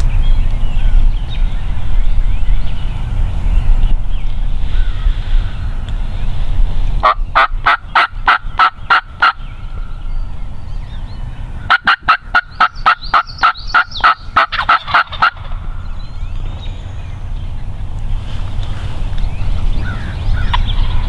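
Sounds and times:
wild turkey yelping: 0:11.7 - 0:15.6.

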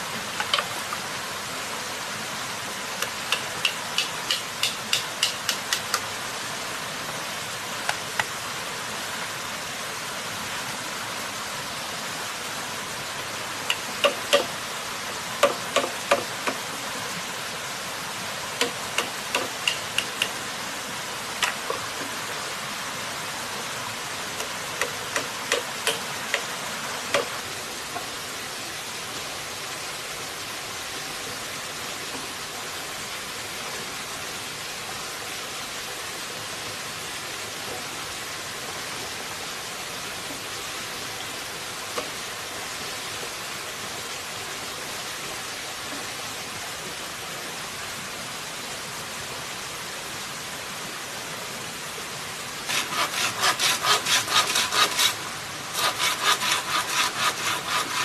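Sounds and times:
steady rushing hiss: 0:00.0 - 0:31.9, 0:50.3 - 0:58.0
handsaw cutting bamboo: 0:03.3 - 0:06.0, 0:13.7 - 0:14.5, 0:15.4 - 0:16.6, 0:18.6 - 0:20.4, 0:24.4 - 0:26.5, 0:27.1 - 0:27.4, 0:52.7 - 0:58.0
bamboo pieces knocking: 0:03.4 - 0:06.0.

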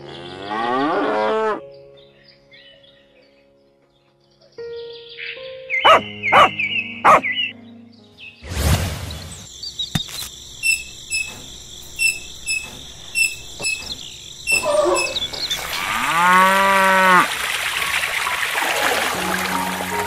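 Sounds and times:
cow mooing: 0:00.0 - 0:01.6, 0:14.5 - 0:17.3
water pouring from a spout: 0:15.5 - 0:20.0.

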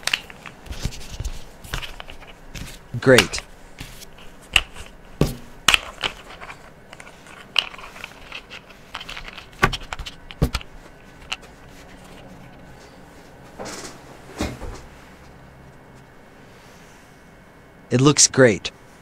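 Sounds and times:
markers rubbing: 0:00.0 - 0:12.4.

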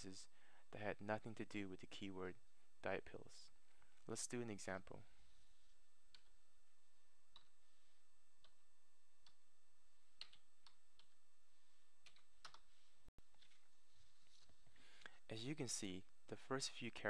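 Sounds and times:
faint keyboard typing: 0:10.2 - 0:11.2, 0:12.0 - 0:12.7.

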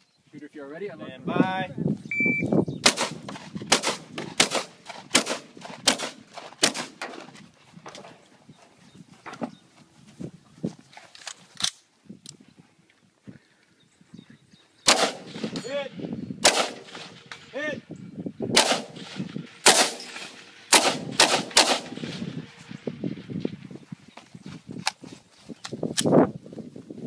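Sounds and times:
rifle shots: 0:02.8 - 0:07.3, 0:14.9 - 0:17.6, 0:18.5 - 0:22.6.

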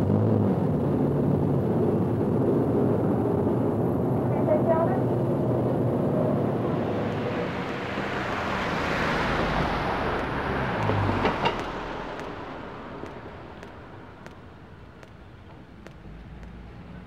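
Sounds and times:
vehicle passing by: 0:05.0 - 0:14.0
sharp clicks: 0:09.2 - 0:17.0.

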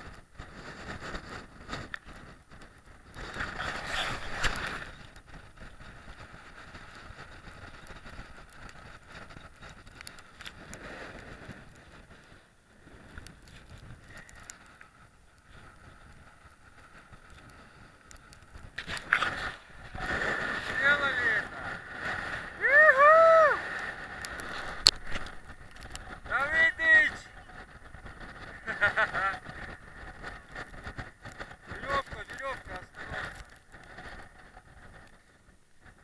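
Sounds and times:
wind buffeting microphone: 0:00.0 - 0:36.0
camera rustling and knocking: 0:24.3 - 0:26.2.

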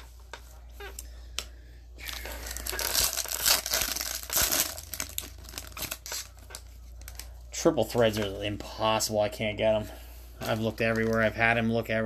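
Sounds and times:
foil wrapper crinkling: 0:02.0 - 0:08.6, 0:10.4 - 0:11.8.

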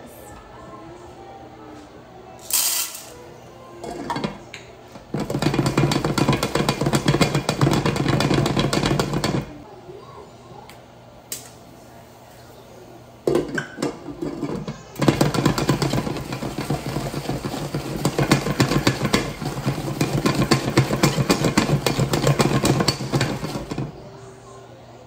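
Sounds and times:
pot and lid rattling: 0:03.8 - 0:04.4, 0:05.0 - 0:09.6, 0:13.3 - 0:24.0
kernels rattling in pot: 0:05.0 - 0:09.6, 0:13.3 - 0:24.0.

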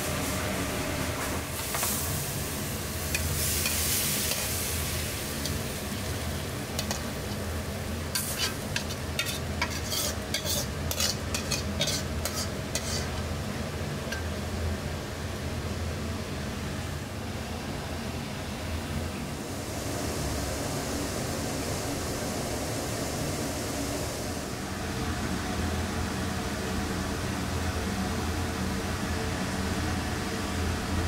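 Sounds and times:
noodles sizzling in a wok: 0:00.0 - 0:15.6
steady low hum: 0:00.0 - 0:31.0
metal utensils scraping wok: 0:08.1 - 0:13.2.

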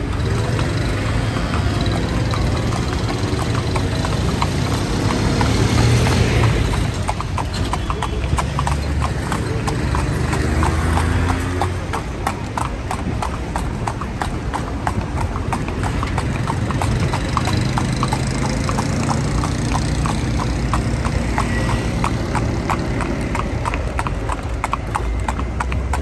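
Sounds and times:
horse hooves clip-clopping: 0:00.0 - 0:26.0.

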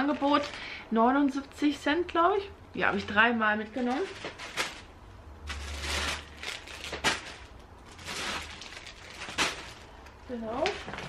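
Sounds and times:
packaging rustling: 0:00.0 - 0:00.7, 0:03.7 - 0:11.0.

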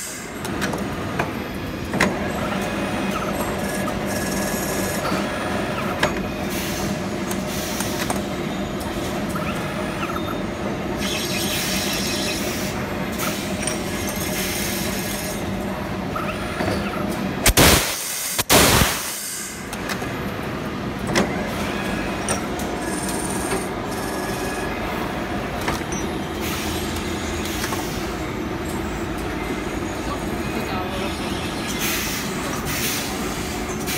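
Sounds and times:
loud bursts of hiss: 0:17.5 - 0:19.6.

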